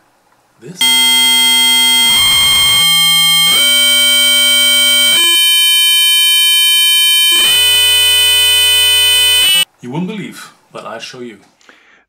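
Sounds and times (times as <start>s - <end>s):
loud electronic buzzing tone: 0.8s - 9.6s.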